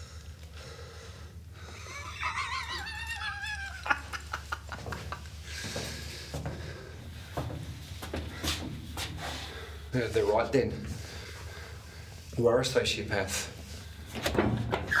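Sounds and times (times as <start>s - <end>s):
man cackling laugh: 1.8s - 5.4s.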